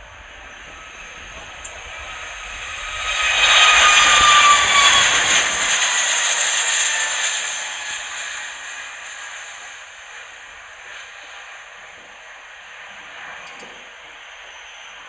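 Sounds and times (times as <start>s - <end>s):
engine whine dropping in pitch: 0.0s - 11.7s
jet engines roaring: 0.0s - 15.0s.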